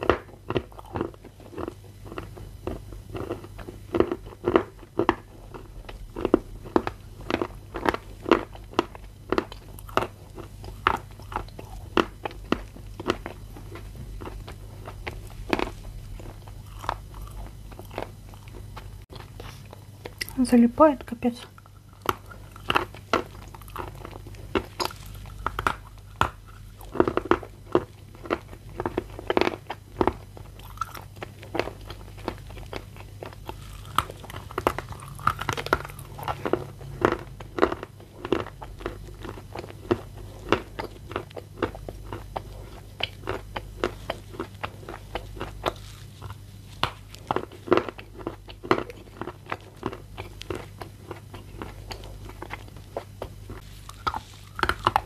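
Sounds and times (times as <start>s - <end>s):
crunchy chewing of clay: 0.0s - 55.0s.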